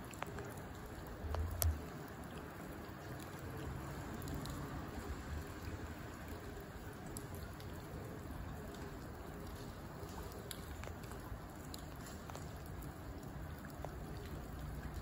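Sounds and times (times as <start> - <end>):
faint ticks: 0.1 - 3.4.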